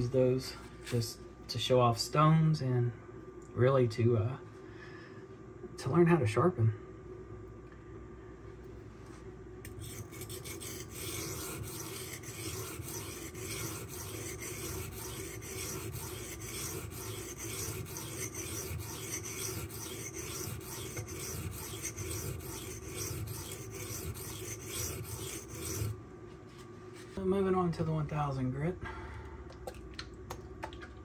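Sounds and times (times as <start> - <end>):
knife scraping on sharpening stone: 9.7 - 25.9.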